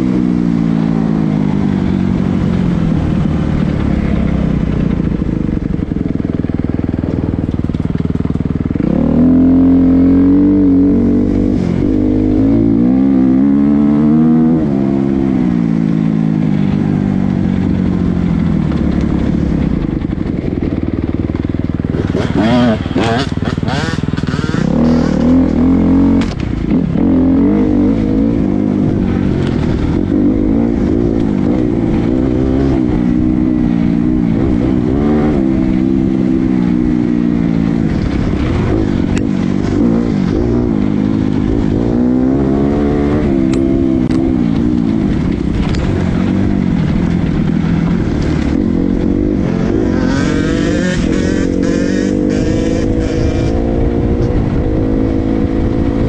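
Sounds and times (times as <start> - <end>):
dirt bike engine revving: 8.2 - 16.2, 21.8 - 56.0.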